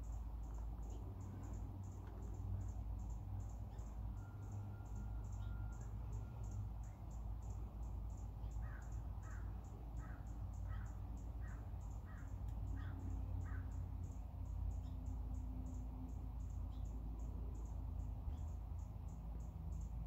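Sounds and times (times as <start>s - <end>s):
low city rumble: 0.0s - 20.0s
crow cawing: 8.6s - 13.8s.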